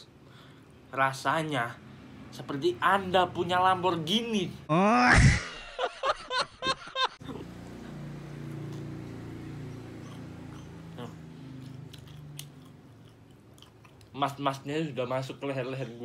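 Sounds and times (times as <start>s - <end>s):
man humming low mmm: 4.7s - 5.4s
men laughing: 4.7s - 7.2s
man chewing: 7.4s - 14.2s
soft mouth clicks: 11.5s - 14.1s.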